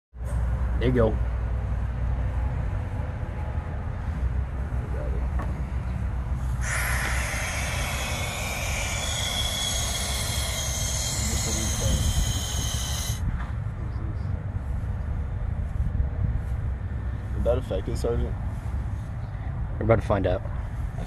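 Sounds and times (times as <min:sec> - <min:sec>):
gas hissing into balloon: 0:06.6 - 0:13.2.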